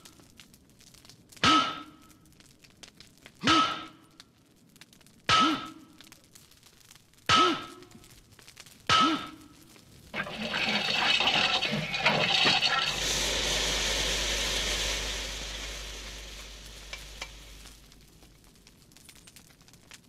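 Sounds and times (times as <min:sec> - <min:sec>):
steam hissing: 0:10.2 - 0:18.2
low rumble: 0:10.2 - 0:18.3.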